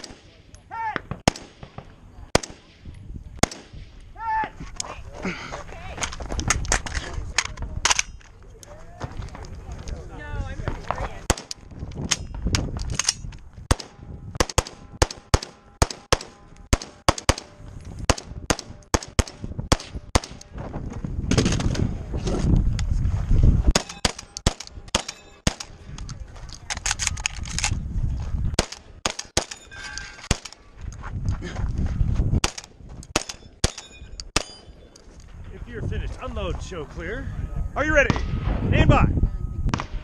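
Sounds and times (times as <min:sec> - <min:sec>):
steel targets ringing: 0:33.3 - 0:34.9.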